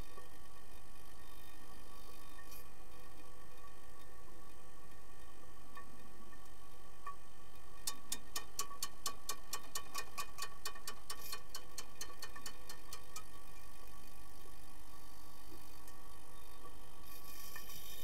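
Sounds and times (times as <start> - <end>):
faint steady hum: 0.0 - 18.0
sharp clicks underwater: 5.7 - 13.4.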